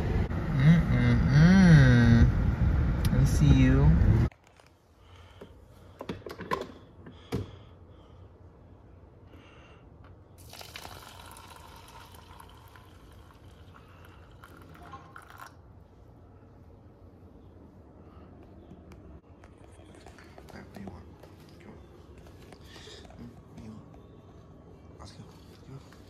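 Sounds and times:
coffee pouring into paper cup: 0:10.4 - 0:15.6.

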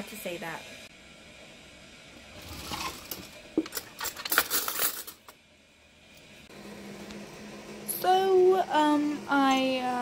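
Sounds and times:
cutlery clinking and rattling: 0:03.6 - 0:05.3.

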